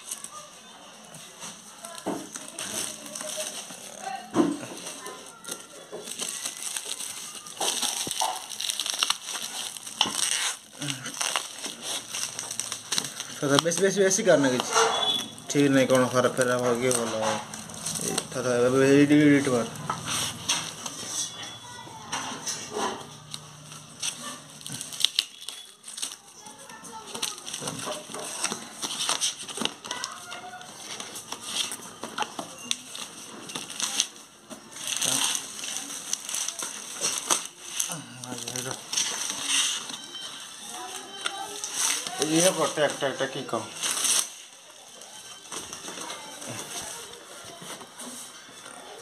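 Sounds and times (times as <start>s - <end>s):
plastic bag crinkling and rustling: 0.0s - 49.0s
cardboard scraping and ripping: 4.7s - 21.2s.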